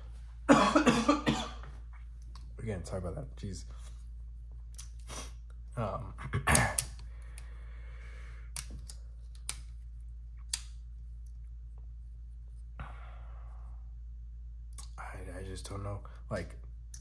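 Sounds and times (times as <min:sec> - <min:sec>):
steady low hum: 0:00.0 - 0:17.0
man coughing: 0:00.5 - 0:01.7, 0:06.1 - 0:06.8
breathing: 0:07.0 - 0:08.6, 0:12.8 - 0:13.9.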